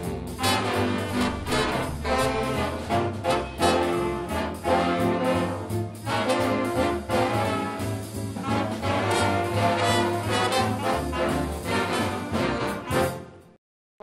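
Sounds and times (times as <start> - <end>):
brass punched chords: 0.0 - 13.0
jazz big band playing: 0.0 - 13.6.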